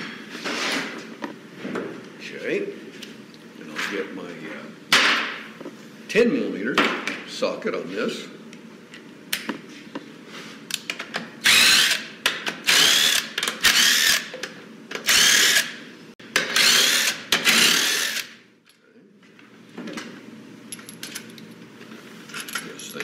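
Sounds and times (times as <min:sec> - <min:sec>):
power driver whining: 0:11.4 - 0:18.4.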